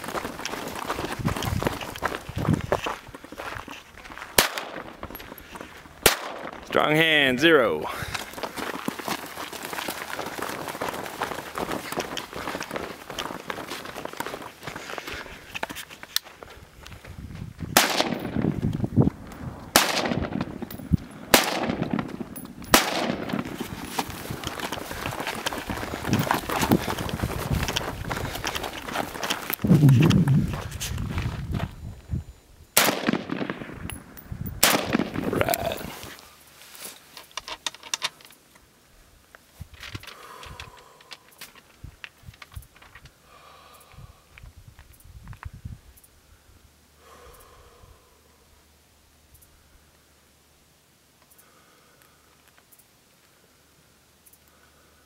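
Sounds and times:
rustling: 8.0s - 17.4s, 21.8s - 31.8s, 35.0s - 38.5s
gunshots with echo: 17.8s - 18.4s, 19.7s - 20.7s, 21.3s - 23.6s, 32.8s - 33.8s, 34.6s - 35.3s.

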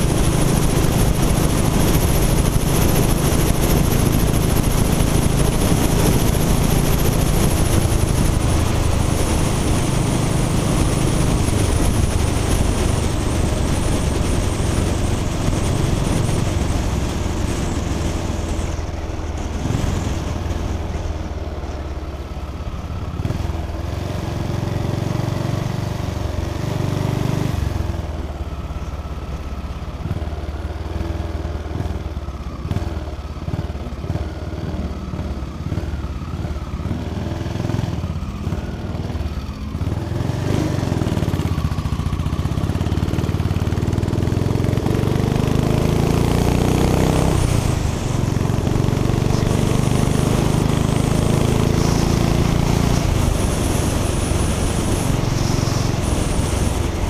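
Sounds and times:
motorcycle engine accelerating: 0.0s - 57.0s.

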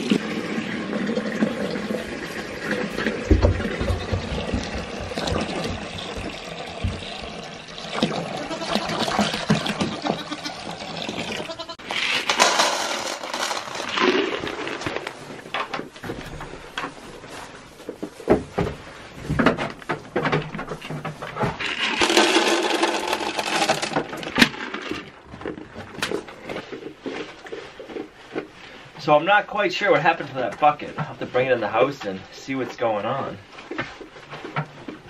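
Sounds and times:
water poured into plastic bucket: 0.0s - 3.7s, 10.6s - 15.2s, 21.6s - 25.2s
containers knocking and clattering: 2.6s - 10.4s, 12.0s - 16.3s, 19.3s - 26.3s
goats bleating: 8.2s - 11.8s.

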